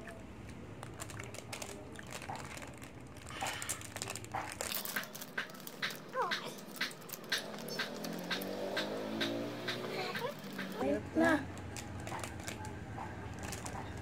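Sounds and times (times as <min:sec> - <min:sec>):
plastic wrapper crinkling: 0:00.0 - 0:08.6, 0:11.2 - 0:14.0.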